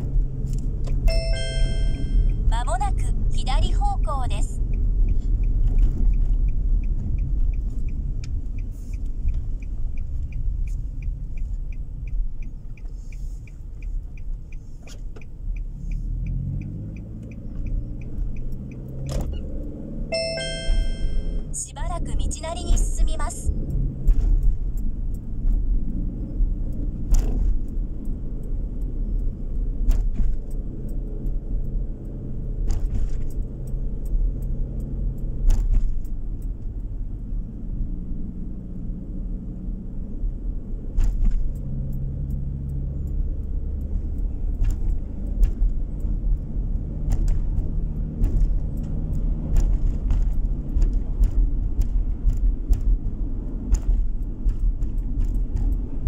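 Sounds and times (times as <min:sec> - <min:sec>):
car engine and tyres rumbling: 0:00.0 - 0:56.0
sharp clicks and rattles: 0:40.3 - 0:56.0.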